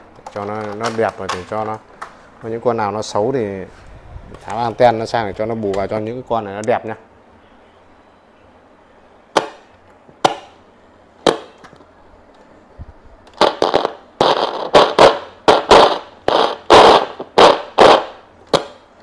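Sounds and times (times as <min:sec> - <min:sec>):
radio speaker crackling and popping: 0:13.2 - 0:18.8.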